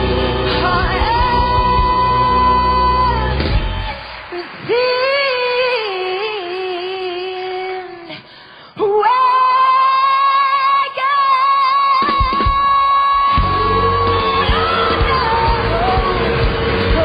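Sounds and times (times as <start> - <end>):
band low end: 0.0 - 4.0, 13.4 - 17.0
woman singing into a microphone: 0.4 - 17.0.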